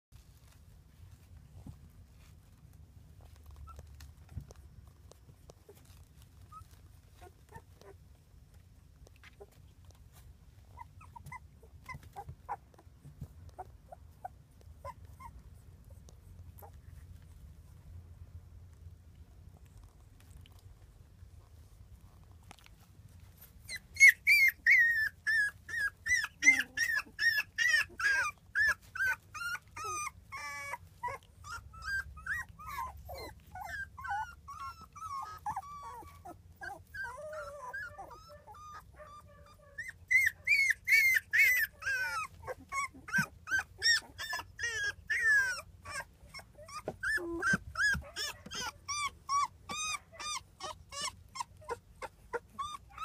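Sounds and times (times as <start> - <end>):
puppies whimpering yelps: 5.6 - 8.0, 9.3 - 16.0, 23.2 - 53.0.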